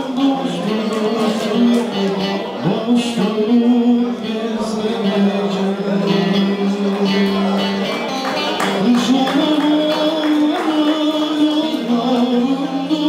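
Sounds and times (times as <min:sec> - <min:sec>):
man singing into microphone: 0:00.0 - 0:13.0.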